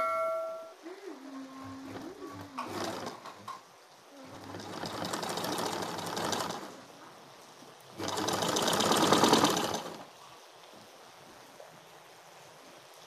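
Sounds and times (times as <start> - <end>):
sewing machine stitching: 1.6 - 3.6, 4.2 - 6.9, 8.0 - 10.1.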